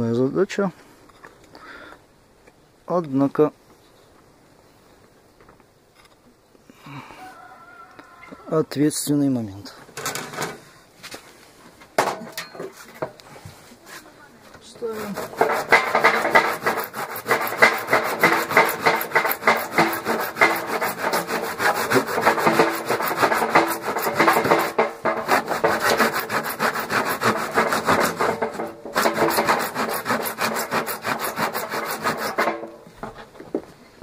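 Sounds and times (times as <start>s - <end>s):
hand saw cutting plastic: 14.8s - 32.8s.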